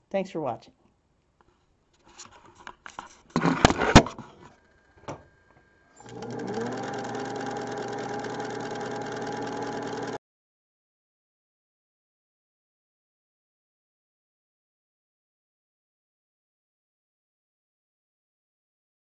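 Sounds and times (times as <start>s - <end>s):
sewing machine running: 6.0s - 10.2s.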